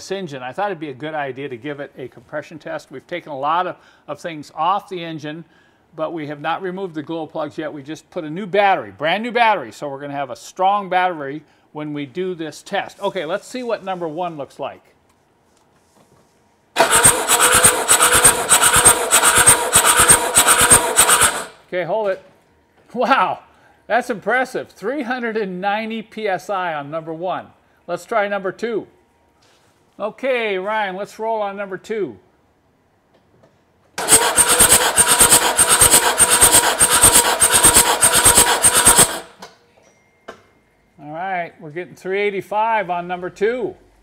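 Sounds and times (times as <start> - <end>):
starter motor cranking engine: 16.8 - 21.6, 34.0 - 39.4.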